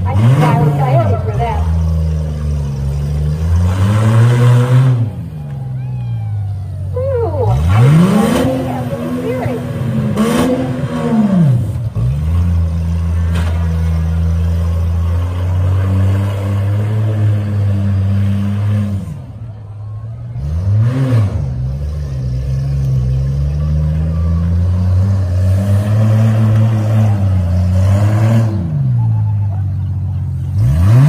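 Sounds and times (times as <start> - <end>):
truck engines running hard: 0.0 - 31.0.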